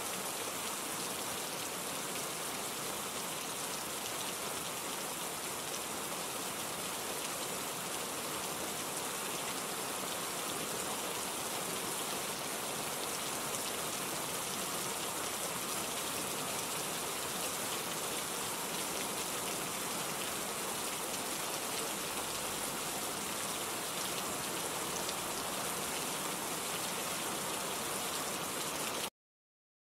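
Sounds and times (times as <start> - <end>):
steady rain falling: 0.0 - 29.1.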